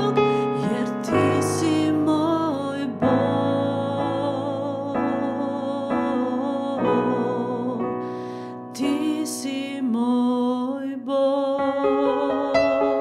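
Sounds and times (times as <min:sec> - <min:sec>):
digital piano chords: 0:00.0 - 0:09.8, 0:11.5 - 0:13.0
woman singing with vibrato: 0:00.0 - 0:13.0
woman breathing: 0:08.0 - 0:08.7.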